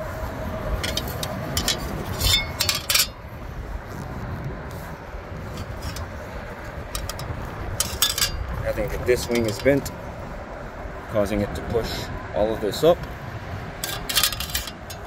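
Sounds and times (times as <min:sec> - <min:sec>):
metal fan blade clinking on metal: 0:00.8 - 0:03.2, 0:06.9 - 0:10.0, 0:13.8 - 0:15.0.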